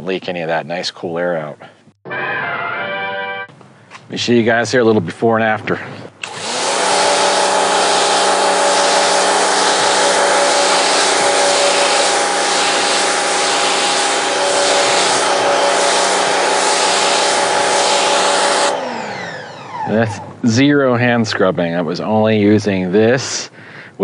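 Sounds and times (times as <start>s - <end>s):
pressure washer pump humming: 6.2s - 20.5s
water jet hissing on mat: 6.9s - 18.7s.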